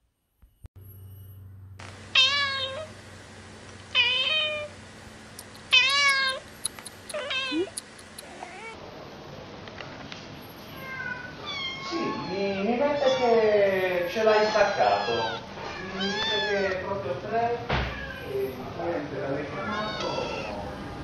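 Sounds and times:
cat meowing: 2.2 - 2.9, 3.9 - 4.7, 5.6 - 8.8, 10.8 - 13.5, 14.2 - 16.8, 17.8 - 18.4, 19.6 - 20.6
short ticks: 5.4 - 8.3.

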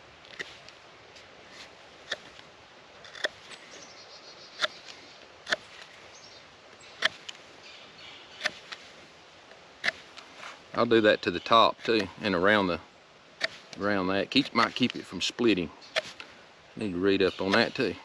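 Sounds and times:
knife scraping wood: 0.3 - 2.4, 3.0 - 3.6, 4.6 - 6.0, 7.0 - 7.4, 8.4 - 9.0, 9.8 - 10.6, 13.4 - 13.8, 15.9 - 16.3.

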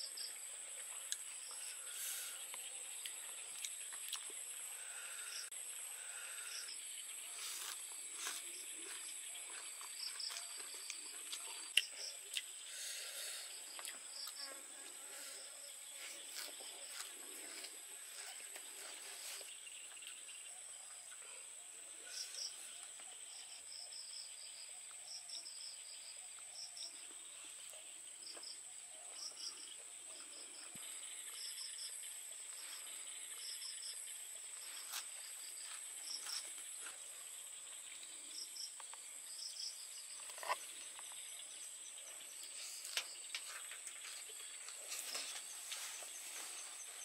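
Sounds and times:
cricket chirps: 0.0 - 47.0
insects droning: 0.0 - 47.0
chewing: 2.5 - 4.5, 7.4 - 14.6.

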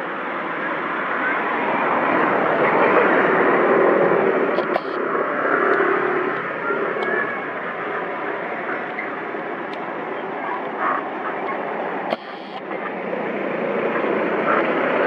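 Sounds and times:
sharp click: 4.6 - 5.0, 12.1 - 12.6.

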